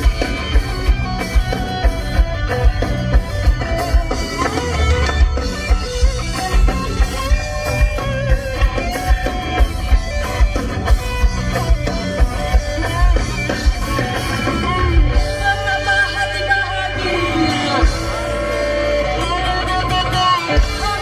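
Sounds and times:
live ska band playing: 0.0 - 21.0
person singing: 12.4 - 21.0.

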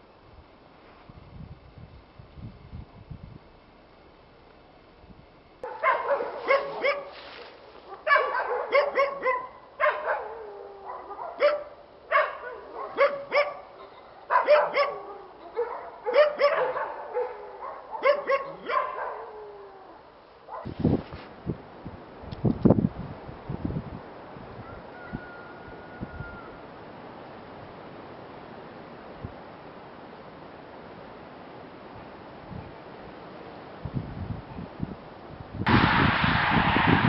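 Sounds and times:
dog barking: 5.6 - 7.2, 7.9 - 19.4, 20.5 - 20.7.

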